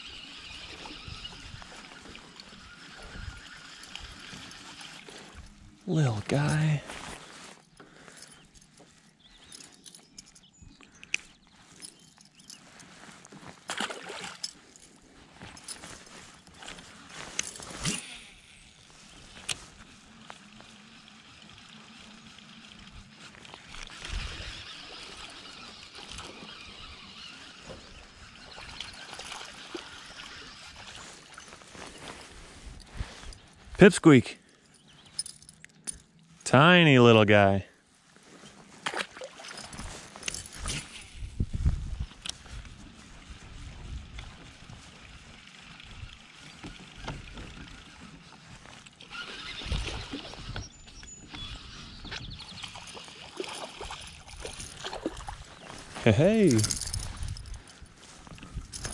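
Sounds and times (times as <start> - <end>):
fishing reel cranking: 0.0 - 5.6, 15.5 - 31.4, 45.3 - 55.1, 55.7 - 57.8
light water movement: 0.0 - 36.4, 38.0 - 41.4, 42.0 - 58.9
wind on microphone: 23.9 - 24.7, 40.6 - 46.2, 49.1 - 52.7, 54.8 - 58.9.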